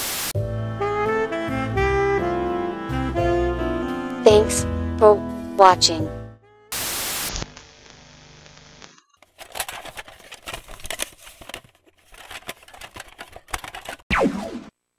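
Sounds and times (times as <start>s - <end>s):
static hiss: 0.0s - 0.4s, 6.8s - 9.0s
music track: 0.4s - 6.4s.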